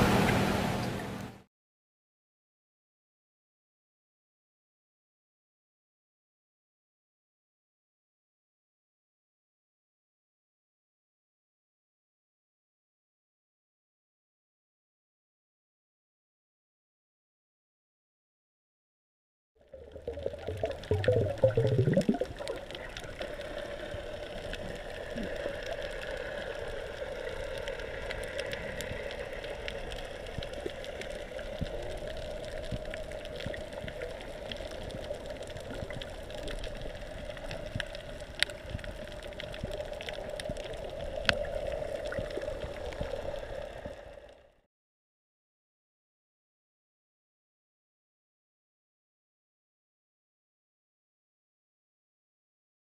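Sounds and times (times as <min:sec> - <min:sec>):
underwater rushing and gurgling: 0:19.7 - 0:44.6.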